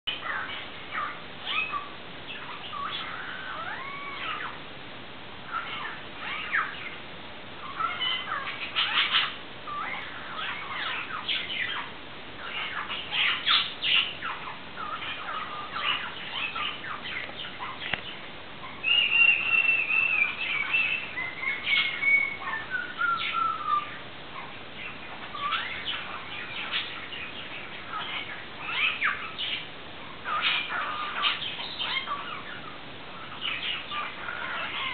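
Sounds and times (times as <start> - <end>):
cockatiel chirps and squawks: 0.1 - 4.6, 5.5 - 7.0, 7.6 - 34.9
cockatiel whistles: 18.8 - 23.9.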